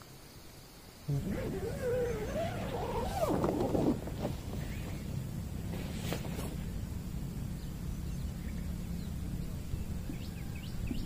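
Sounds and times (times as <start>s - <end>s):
low steady rumble: 1.1s - 11.0s
faint bird chirps: 7.5s - 11.0s.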